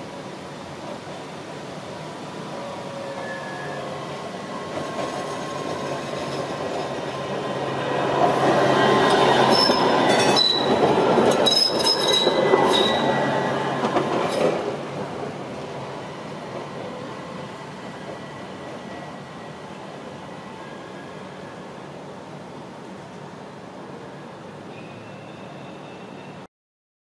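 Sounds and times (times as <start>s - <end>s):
tram rumbling past: 0.0s - 26.5s
high-pitched wheel squeals: 9.5s - 10.8s, 11.4s - 13.2s.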